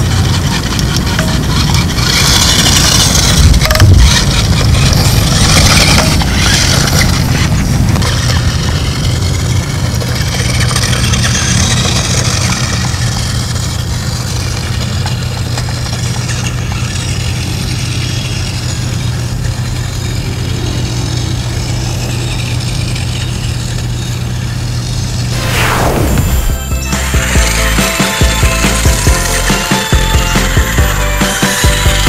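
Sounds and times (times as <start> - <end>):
engine idling: 0.0 - 25.4.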